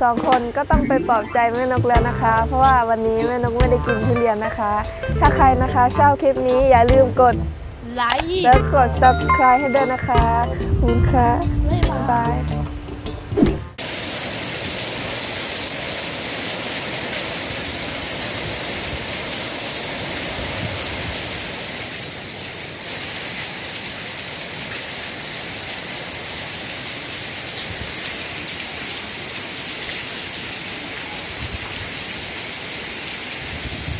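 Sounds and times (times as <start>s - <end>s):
rain falling: 13.8s - 33.9s.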